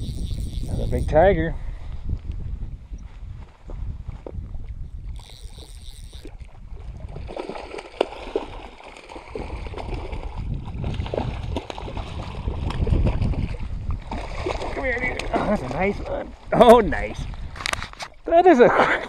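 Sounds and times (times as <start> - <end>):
fish splashing in water: 5.2 - 15.7.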